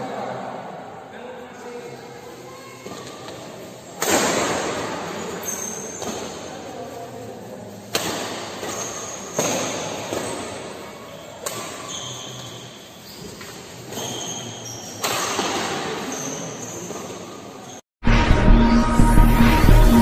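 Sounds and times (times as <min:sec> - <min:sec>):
high shoe squeaks: 0:05.1 - 0:06.4, 0:08.5 - 0:17.8.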